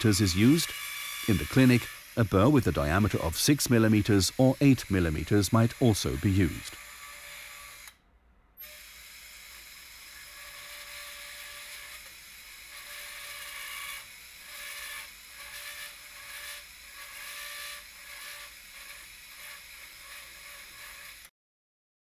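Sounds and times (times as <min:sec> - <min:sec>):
power drill whirring into plastic: 0:05.3 - 0:08.0, 0:08.6 - 0:21.3.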